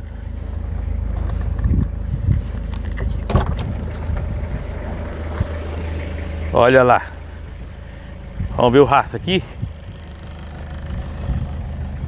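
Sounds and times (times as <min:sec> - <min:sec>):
diesel engine humming: 0:00.0 - 0:12.0
wind on microphone: 0:01.4 - 0:05.9, 0:09.4 - 0:12.0.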